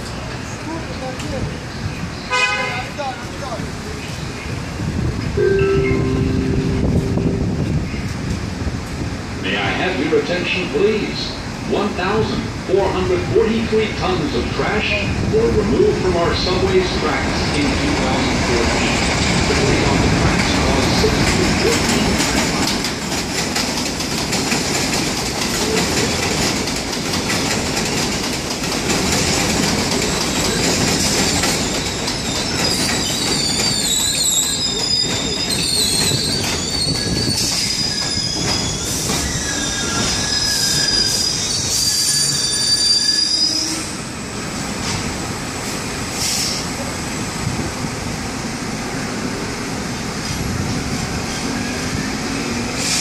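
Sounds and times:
train wheels rumbling on rails: 0.0 - 53.0
wheel squeal: 31.0 - 43.9.

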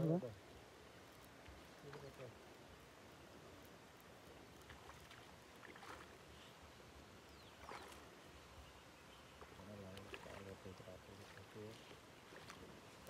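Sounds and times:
light rain on water: 0.0 - 13.0
small splashes: 4.5 - 6.6, 7.3 - 8.5, 9.4 - 13.0.

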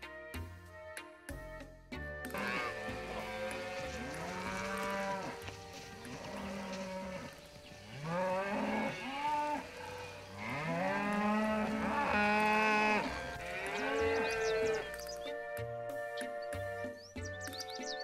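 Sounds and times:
cows mooing: 2.3 - 15.0.

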